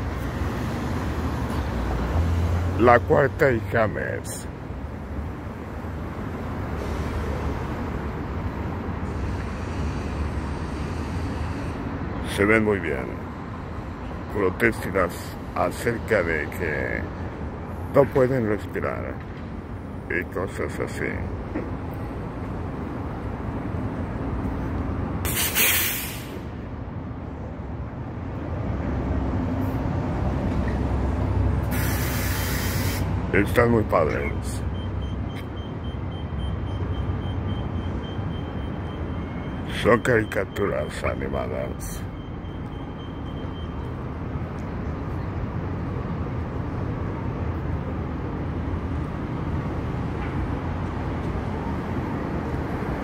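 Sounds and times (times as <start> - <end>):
heavy vehicle engine: 0.0 - 20.1, 21.1 - 53.0
city traffic rumble: 0.0 - 53.0
loud hiss: 25.3 - 26.4, 31.6 - 33.1.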